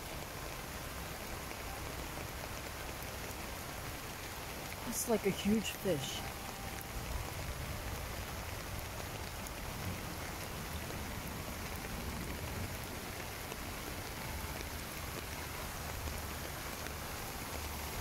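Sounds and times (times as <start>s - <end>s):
rain falling on a pond: 0.0s - 18.0s.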